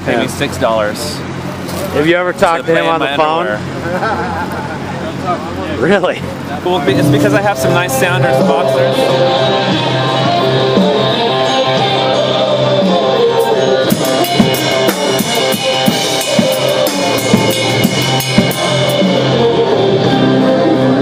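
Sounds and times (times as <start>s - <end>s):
bass guitar: 6.8s - 10.4s
drum kit with cymbals: 12.8s - 19.7s.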